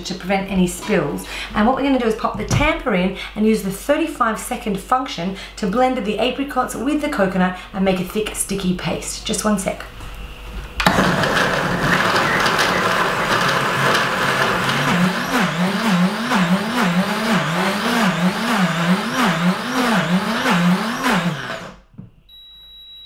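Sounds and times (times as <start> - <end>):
blender running on thick mix: 10.8 - 21.8.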